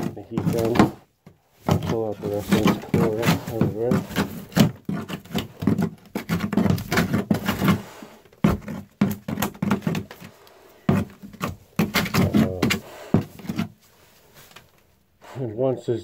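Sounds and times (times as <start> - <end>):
wood cracking and scraping: 0.0 - 13.8.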